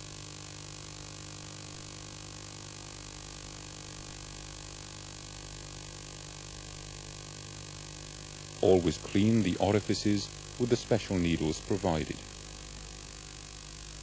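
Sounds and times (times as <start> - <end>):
electrical hum: 5.2 - 14.0
constant hiss: 5.7 - 14.0.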